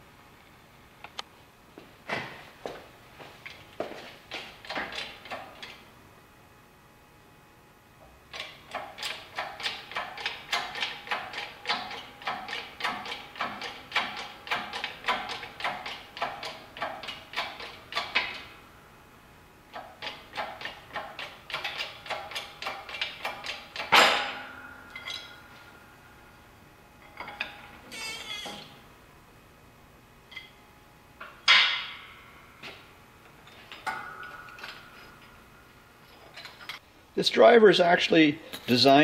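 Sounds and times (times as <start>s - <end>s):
loud crack with metallic ring: 20.0s - 25.8s, 27.2s - 28.8s, 31.4s - 32.4s.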